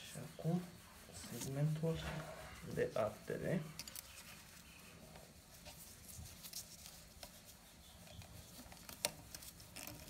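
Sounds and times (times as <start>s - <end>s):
faint rustling: 0.0s - 10.0s.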